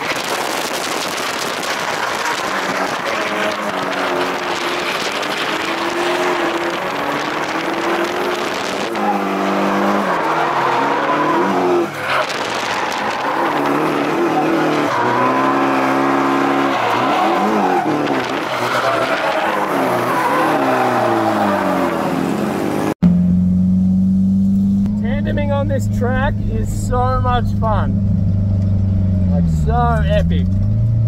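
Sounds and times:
car engine revving: 0:00.0 - 0:31.0
tyres squealing: 0:01.7 - 0:22.0.

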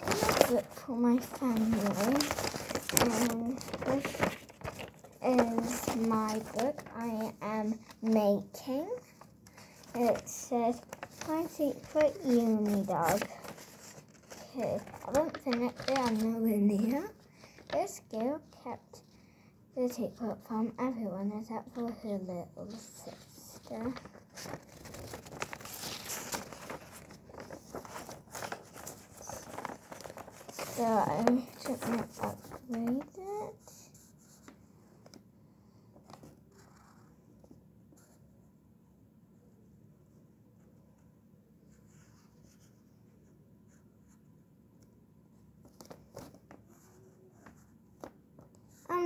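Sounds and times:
paper rustling and crinkling: 0:00.0 - 0:18.6, 0:21.6 - 0:35.2, 0:36.0 - 0:38.2, 0:45.6 - 0:49.0.

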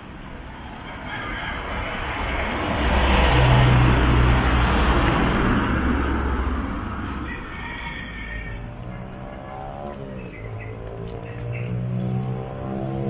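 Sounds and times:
vehicle passing by: 0:00.0 - 0:13.0.

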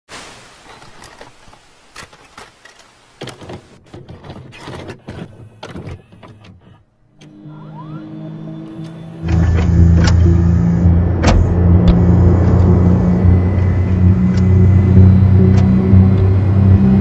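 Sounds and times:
short rising whistles: 0:07.5 - 0:09.2
low steady drone: 0:07.5 - 0:17.0.

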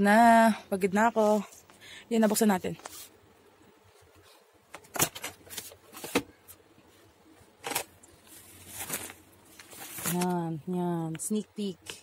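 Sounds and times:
clothes rustling inside drum: 0:07.6 - 0:10.4.

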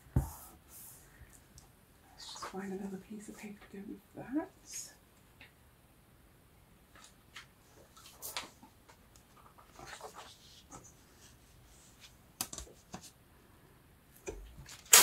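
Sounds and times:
paper rustling and sliding: 0:09.4 - 0:12.2.

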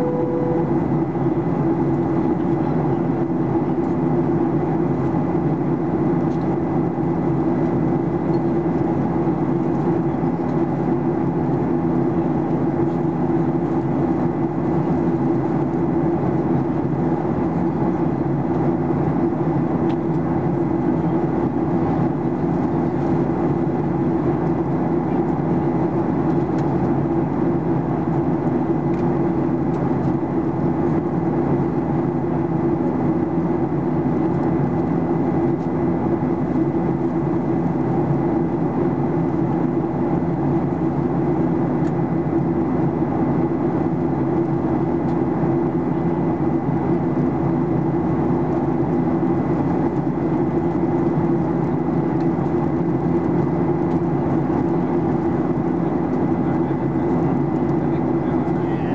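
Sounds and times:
thin steady whine: 0:00.0 - 0:03.4
jet engine and airflow drone: 0:00.0 - 0:58.9.

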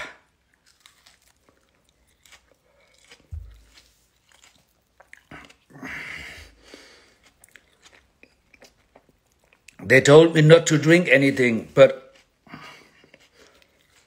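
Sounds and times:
soft chewing clicks: 0:06.8 - 0:09.8.

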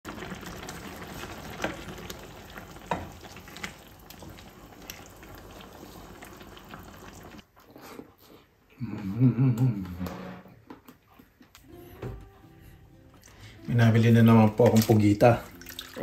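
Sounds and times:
sauce sizzling and bubbling: 0:00.0 - 0:07.5.

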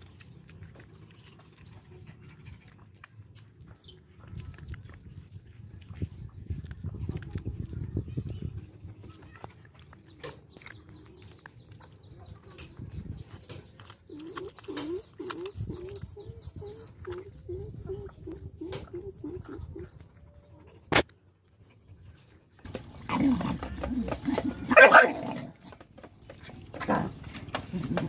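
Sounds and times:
puppies suckling: 0:00.0 - 0:18.5.

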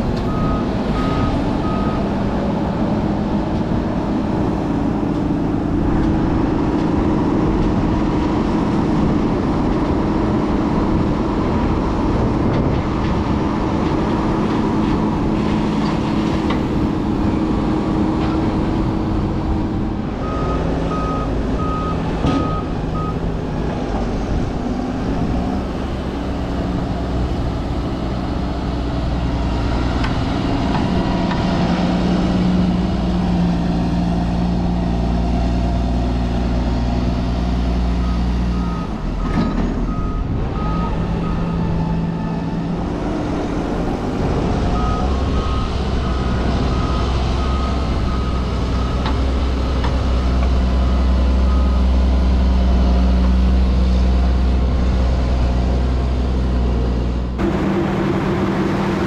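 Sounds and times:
tractor diesel engine under load: 0:00.0 - 0:59.0
reversing alarm beeping: 0:00.3 - 0:02.1, 0:20.2 - 0:23.2, 0:44.7 - 0:49.3.

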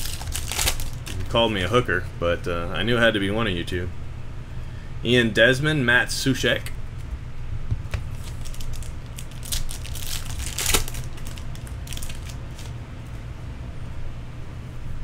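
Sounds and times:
foil wrapper crinkling and tearing: 0:00.0 - 0:01.4, 0:08.1 - 0:12.7.

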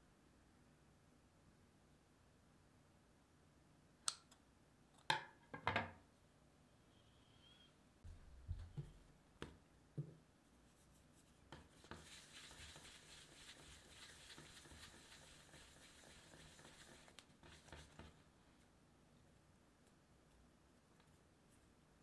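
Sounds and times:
hand rolling dough on surface: 0:08.1 - 0:20.0.

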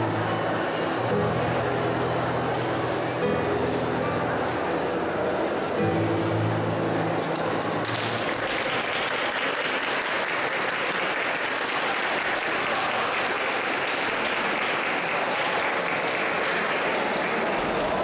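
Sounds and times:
classical guitar low notes: 0:00.0 - 0:08.8
audience applauding: 0:07.3 - 0:18.0.

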